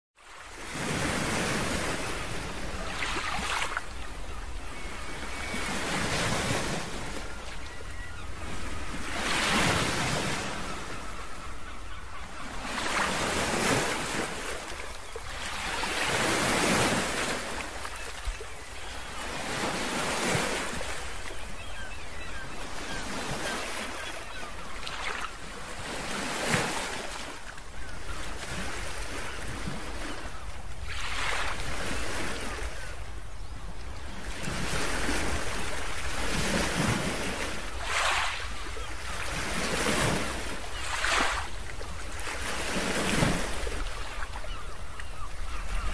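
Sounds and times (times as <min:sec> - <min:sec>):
ocean waves washing: 0:34.3 - 0:45.9.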